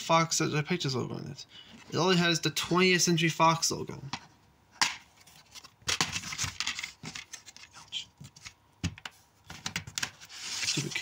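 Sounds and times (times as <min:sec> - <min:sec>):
rustling and scraping: 0:05.0 - 0:11.0.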